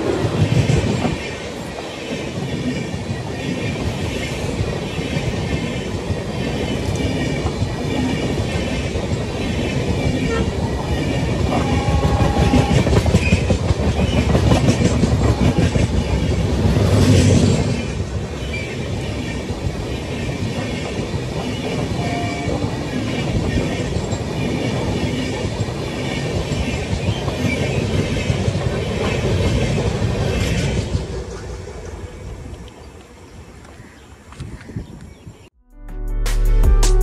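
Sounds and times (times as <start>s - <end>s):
train wheels clattering over rail joints: 12.6s - 17.7s.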